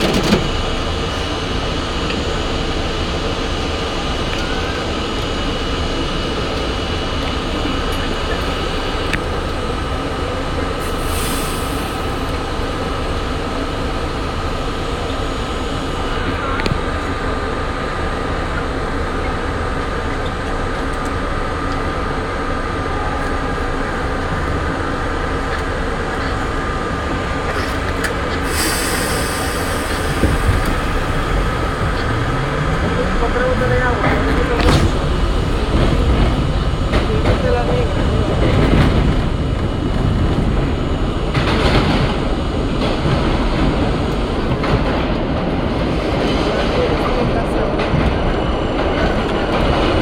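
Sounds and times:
subway train wheels rumbling: 0.0s - 50.0s
hiss bursts: 10.8s - 12.2s, 28.4s - 31.9s.

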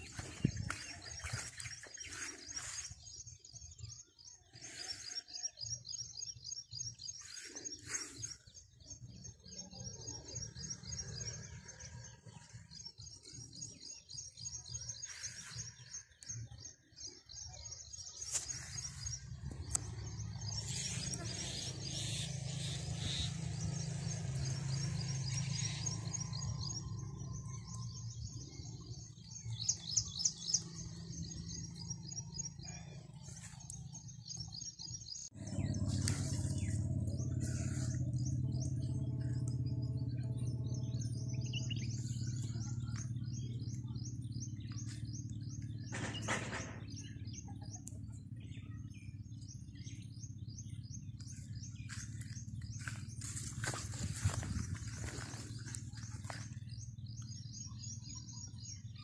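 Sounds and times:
footsteps: 0.0s - 3.0s, 51.9s - 56.6s
small birds chirping: 0.0s - 59.0s
low steady hum: 18.5s - 46.2s.

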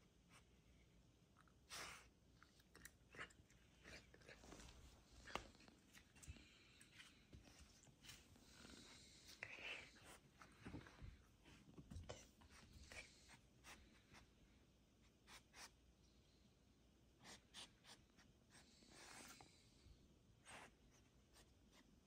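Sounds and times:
faint scratchy rustles: 3.8s - 14.4s.

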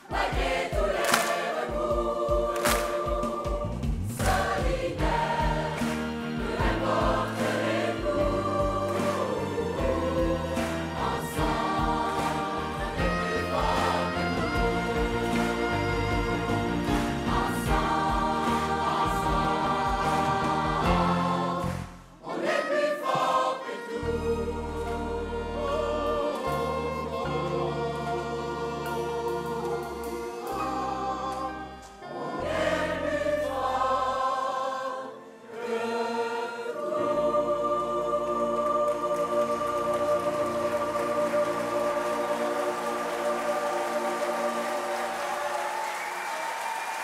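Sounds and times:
mixed choir singing in harmony: 0.0s - 47.0s
low instrumental accompaniment: 0.1s - 21.9s, 23.2s - 34.3s.

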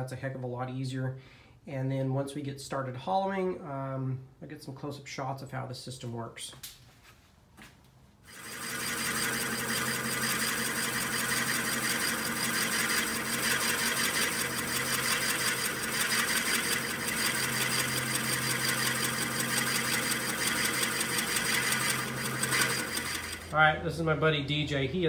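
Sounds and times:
drill bit boring wood: 8.3s - 23.6s
wood lathe whirring: 8.3s - 23.8s.

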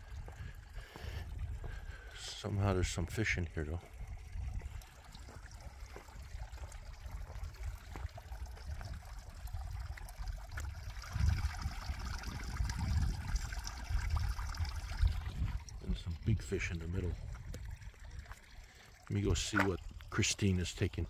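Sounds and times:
wind rumble on microphone: 0.0s - 2.8s, 3.9s - 18.4s
water trickling into pond: 0.0s - 21.0s.

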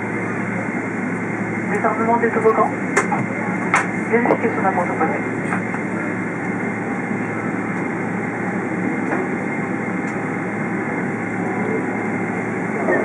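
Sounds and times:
airliner cabin rumble and hiss: 0.0s - 13.0s.

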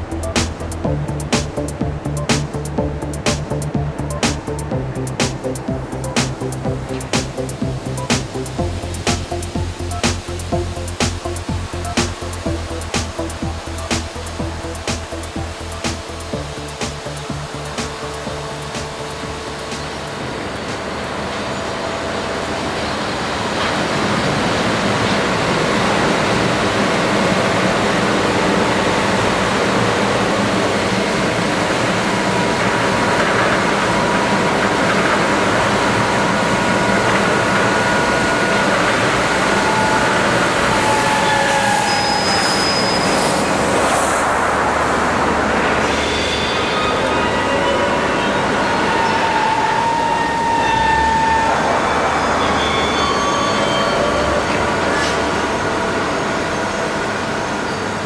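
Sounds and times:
rail clicks: 0.0s - 45.8s
train rumbling on rails: 0.0s - 58.0s.

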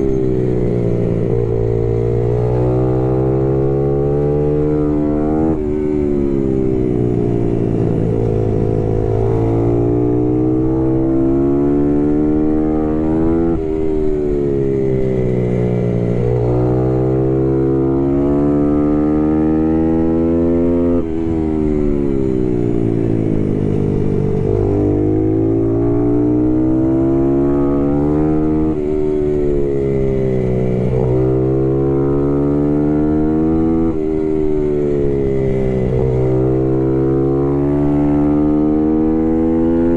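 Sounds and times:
race motorcycle engine revving: 22.8s - 29.7s, 30.4s - 34.0s.

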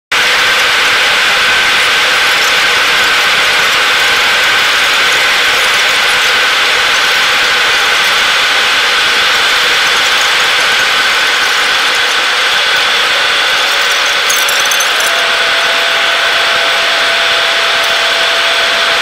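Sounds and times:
jet engines and airflow in cabin: 0.1s - 14.3s
constant high whine: 0.1s - 19.0s.

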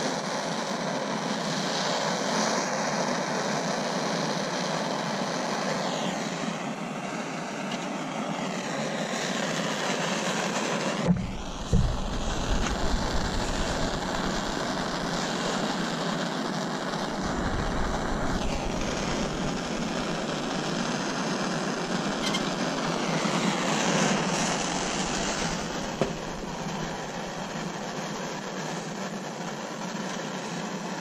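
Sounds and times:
gas torch flame hissing: 0.0s - 31.0s
torch switching off click: 10.9s - 29.2s.

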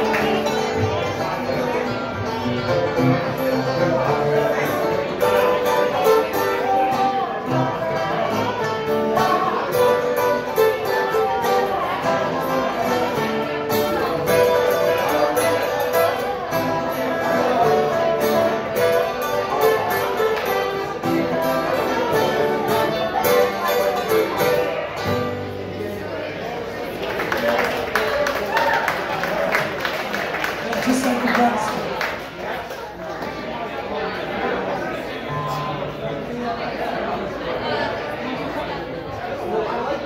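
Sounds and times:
banjo: 0.0s - 28.1s
guitar: 0.0s - 40.0s.

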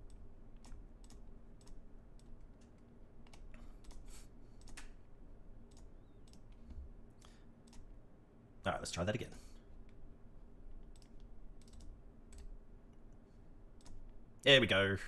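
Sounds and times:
computer mouse clicking: 0.0s - 5.0s, 5.6s - 7.9s, 10.8s - 13.2s, 13.8s - 14.2s
faint steady hum: 0.0s - 15.0s.

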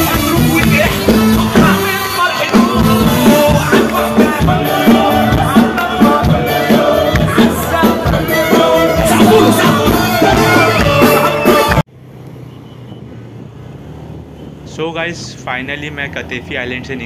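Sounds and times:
loud amplified concert music: 0.0s - 11.8s
person singing: 0.0s - 11.8s.

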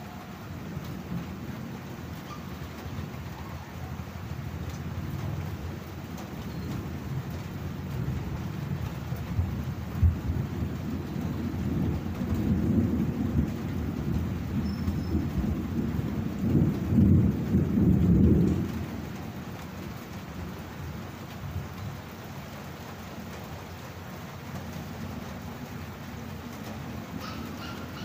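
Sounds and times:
steady rain: 0.0s - 28.0s
rolling thunder: 4.2s - 20.6s.

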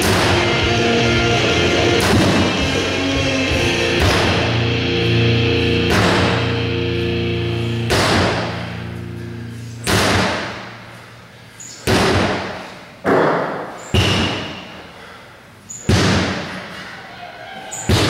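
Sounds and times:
heavy echoing thuds: 0.0s - 2.8s, 3.5s - 4.8s, 5.7s - 6.7s, 7.7s - 8.8s, 9.8s - 10.8s, 11.8s - 14.8s, 15.8s - 16.6s
music: 0.0s - 9.5s.

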